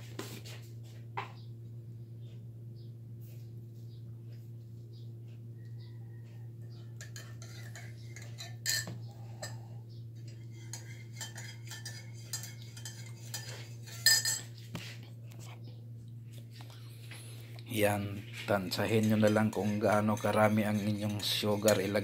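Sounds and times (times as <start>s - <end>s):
teaspoon clinking against mug: 7.0s - 9.6s, 10.6s - 14.5s, 18.7s - 22.0s.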